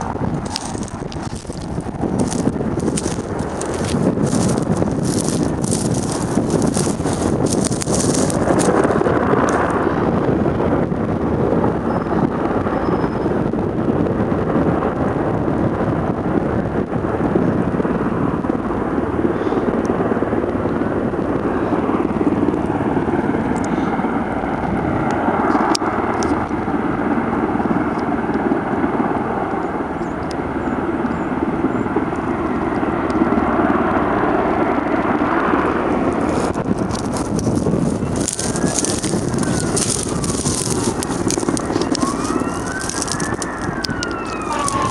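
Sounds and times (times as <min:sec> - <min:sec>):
crackling: 0:00.0 - 0:09.8, 0:35.1 - 0:44.9
engine noise: 0:00.0 - 0:11.0, 0:34.6 - 0:44.9
wind: 0:00.0 - 0:44.9
siren rising and falling: 0:38.3 - 0:44.9.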